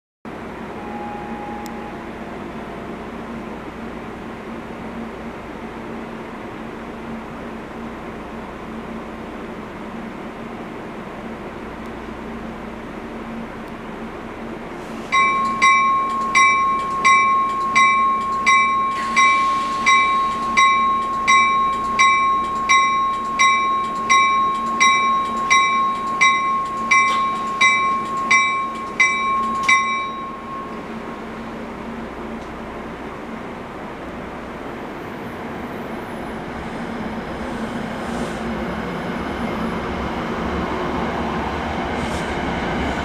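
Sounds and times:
train bell ringing: 0.7s - 2.2s, 15.1s - 31.3s.

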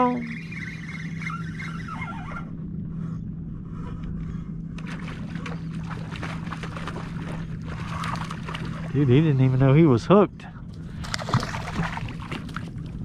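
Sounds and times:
steady low hum: 0.0s - 13.0s
fish splashing at water surface: 11.0s - 12.8s.

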